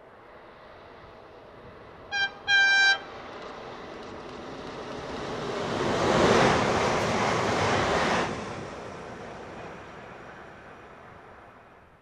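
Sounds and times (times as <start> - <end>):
train rumble: 0.0 - 12.0
electric train horn: 2.1 - 3.1.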